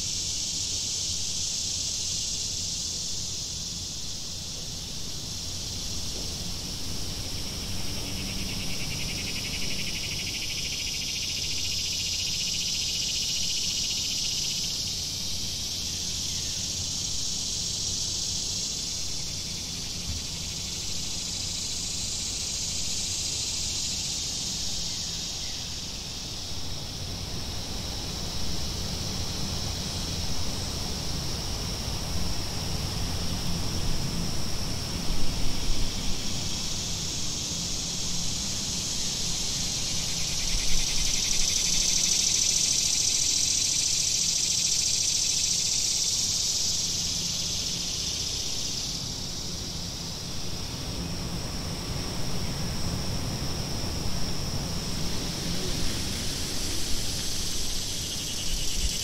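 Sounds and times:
cicadas buzzing: 0.0 - 59.0.

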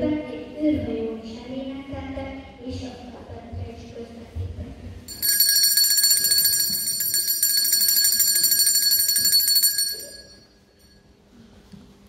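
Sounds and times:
electric bell ringing: 5.1 - 11.0.

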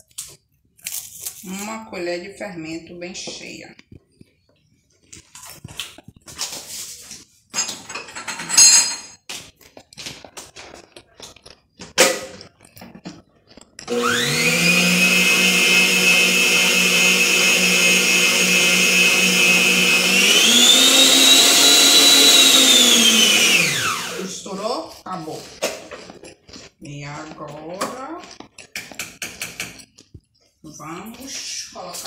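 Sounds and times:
mixer motor whine: 13.8 - 24.5.

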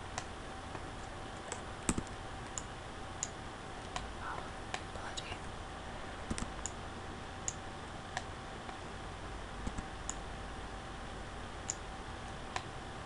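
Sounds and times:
faint recording hiss: 0.0 - 13.0
mouse and keyboard clicks: 1.4 - 4.1, 6.3 - 6.8, 9.6 - 10.2.

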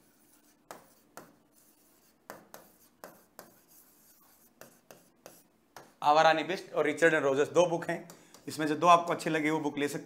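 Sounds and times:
pen writing strokes: 0.0 - 5.9.

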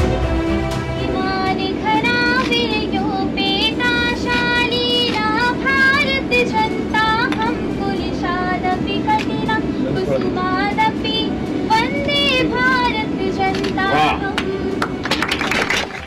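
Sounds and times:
train carriage rumble: 0.0 - 16.0.

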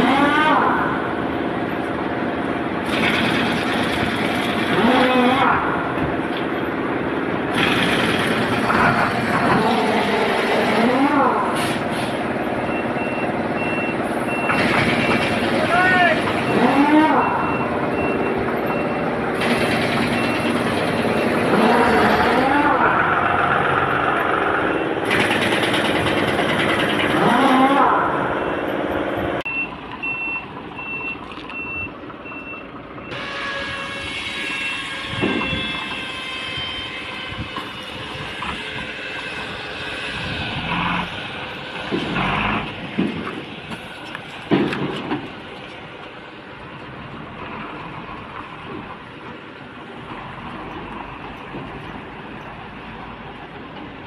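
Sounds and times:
truck clanks: 0.0 - 33.8, 34.7 - 36.2, 37.0 - 54.0
diesel engine running: 0.0 - 54.0
air brake hisses: 11.6 - 12.2
reversing alarm beeping: 12.6 - 15.3, 16.4 - 21.5, 29.5 - 39.6.

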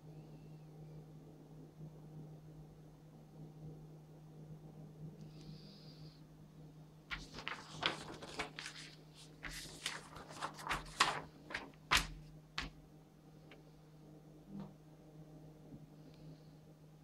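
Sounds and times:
faint steady hum: 0.0 - 17.0
paper rustling: 7.1 - 12.8.

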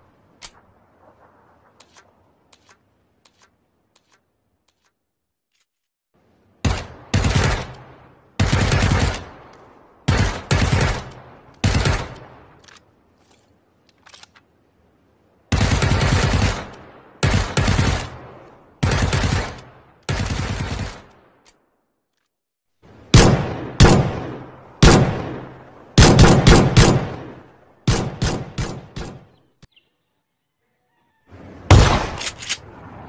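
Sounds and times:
automatic rifle gunfire: 23.2 - 29.2.

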